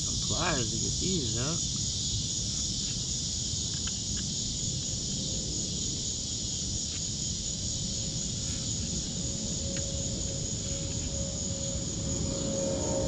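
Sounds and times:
crickets chirping: 0.0s - 13.0s
low rumble: 7.9s - 13.0s.

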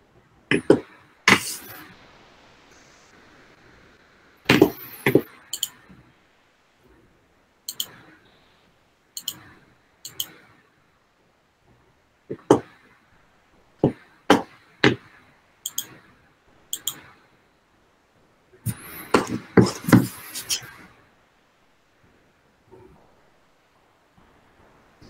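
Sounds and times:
sharp clicks and knocks: 9.2s - 9.4s.

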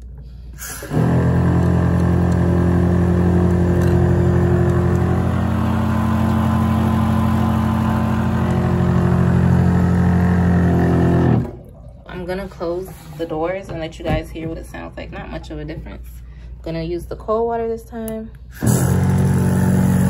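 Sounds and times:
electric pump buzzing: 0.5s - 12.4s, 18.5s - 20.0s
water stream into steel basin: 0.6s - 13.0s.

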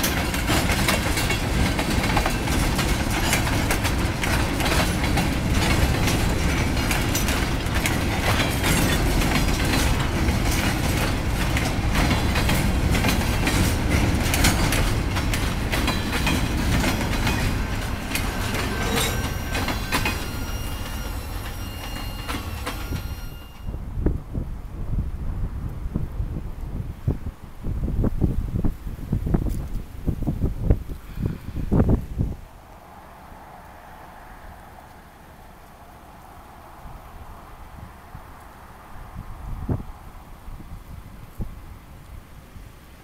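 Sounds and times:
wheels clacking over rail joints: 0.0s - 23.8s
freight train rumbling past: 0.0s - 24.3s
high wheel squeal: 15.8s - 23.8s.

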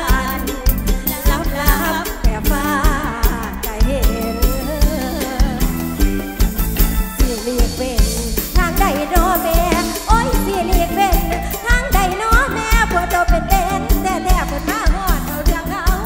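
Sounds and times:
drum kit beat: 0.0s - 16.0s
live band music: 0.0s - 16.0s
woman singing: 0.0s - 16.0s.

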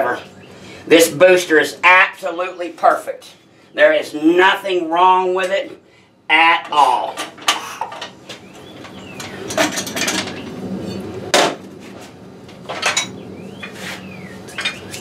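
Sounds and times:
metal clanks: 8.8s - 11.6s, 12.5s - 13.2s.

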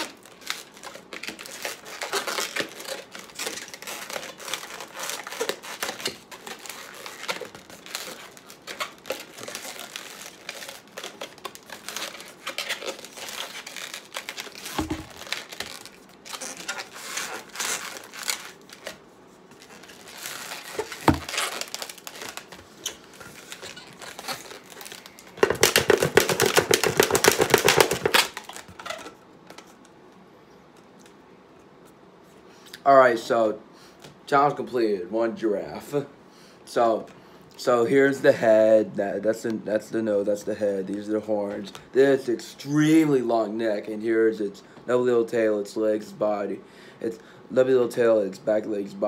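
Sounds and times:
balloon squeaking: 1.3s - 18.9s, 19.5s - 29.2s.

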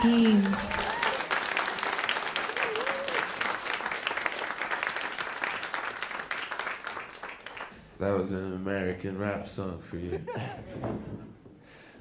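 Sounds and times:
audience applauding: 0.0s - 7.8s.

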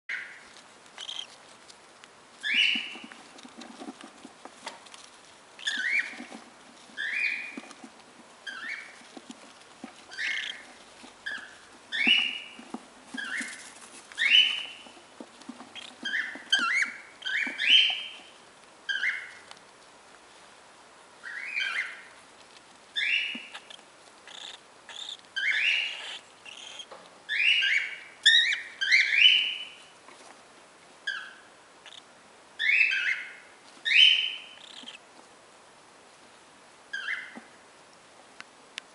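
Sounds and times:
bird chicks chirping: 0.1s - 1.6s, 2.4s - 4.4s, 5.4s - 19.5s, 21.2s - 22.2s, 22.9s - 30.0s, 31.0s - 35.1s, 36.9s - 37.6s.

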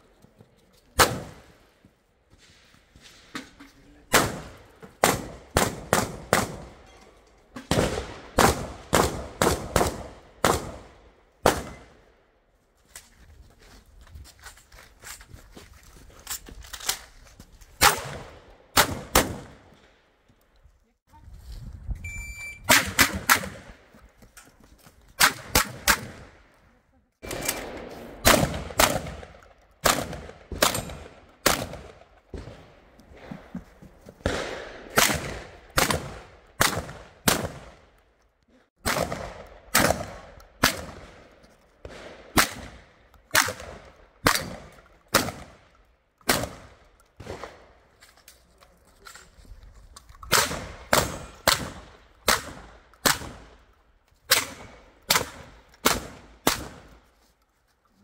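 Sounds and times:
shotgun shots: 1.0s - 1.4s, 4.1s - 6.8s, 7.7s - 12.0s, 17.8s - 19.6s, 22.7s - 23.8s, 25.2s - 26.4s, 27.2s - 33.3s, 34.2s - 37.8s, 38.8s - 41.2s, 41.8s - 45.6s, 46.3s - 47.7s, 50.3s - 53.6s, 54.3s - 56.9s
short high electronic beep: 22.0s - 22.7s.

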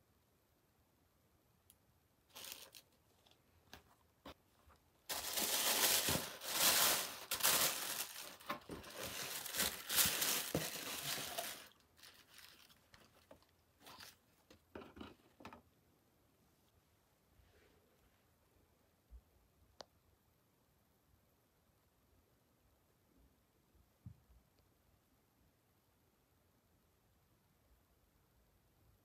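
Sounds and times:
tissue paper crinkling and rustling: 2.3s - 3.4s, 5.1s - 14.2s.

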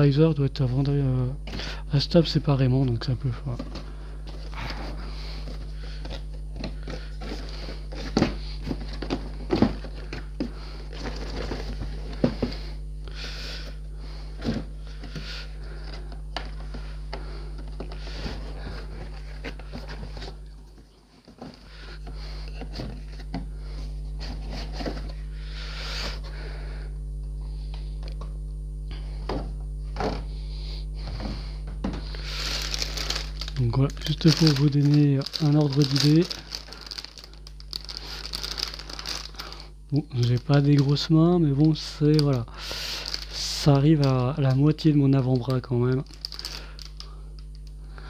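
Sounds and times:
steady low hum: 0.0s - 48.0s
plastic bags rustling: 3.4s - 13.7s, 32.0s - 47.8s.

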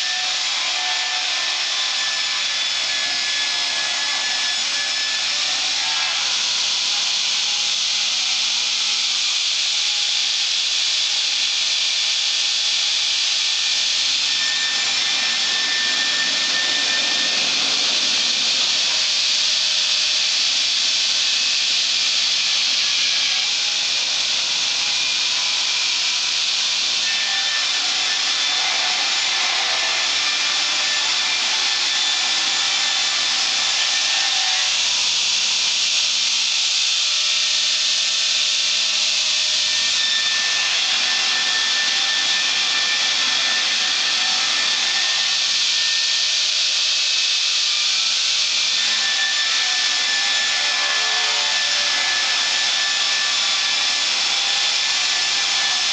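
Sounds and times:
circular saw blade cutting log: 12.5s - 35.3s, 38.7s - 46.2s.

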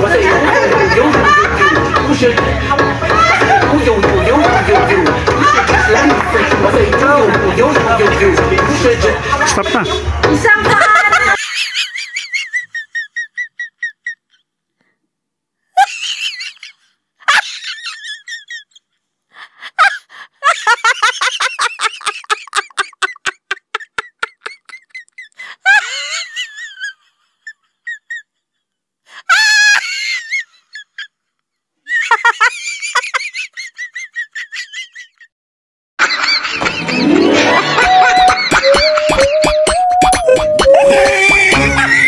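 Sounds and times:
shrill laughter and squeals: 3.1s - 8.0s, 29.3s - 31.2s, 36.4s - 42.0s.

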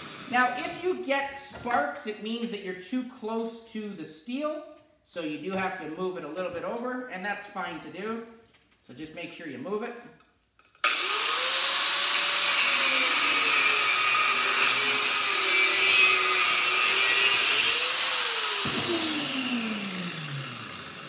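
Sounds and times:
angle grinder cutting metal: 10.8s - 21.0s.

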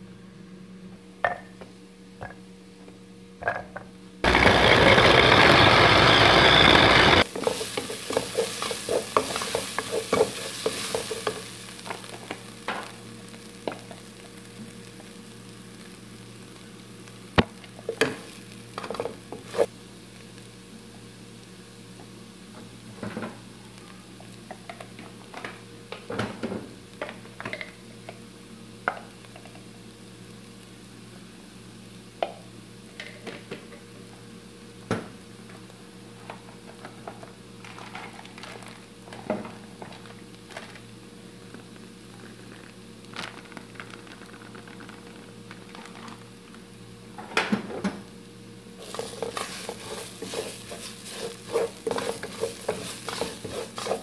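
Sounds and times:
onion frying in oil: 4.2s - 33.2s, 36.3s - 47.2s, 48.0s - 54.0s
wooden spoon scraping a pot: 7.2s - 11.4s, 48.8s - 54.0s.

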